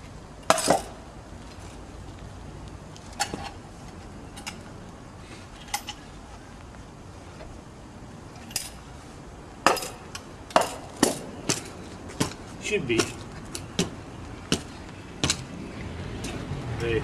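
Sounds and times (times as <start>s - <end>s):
metal hub clinking on axle: 0.5s - 1.0s, 16.2s - 17.0s.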